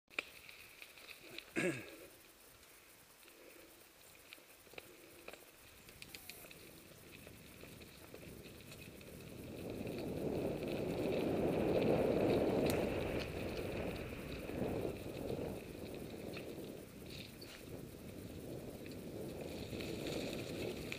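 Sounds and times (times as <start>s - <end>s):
bike clicks and rattles: 4.2s - 20.9s
tyre and wind rush: 6.6s - 20.9s.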